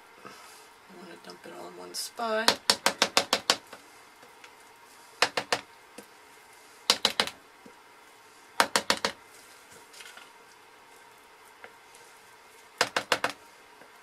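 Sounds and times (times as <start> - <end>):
spatula tapping plastic bowl: 6.9 - 7.3.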